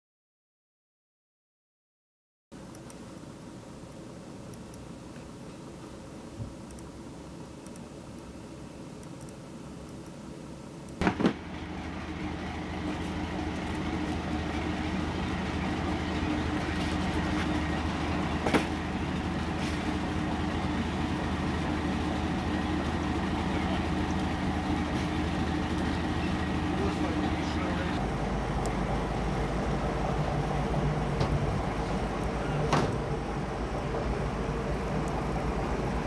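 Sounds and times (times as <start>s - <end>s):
engine low steady hum: 2.6s - 36.0s
loud knocks: 11.0s - 11.4s.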